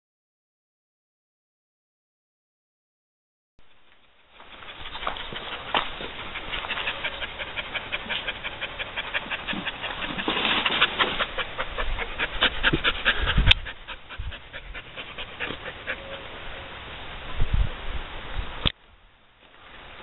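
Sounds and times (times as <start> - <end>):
dog panting: 4.3 - 16.3.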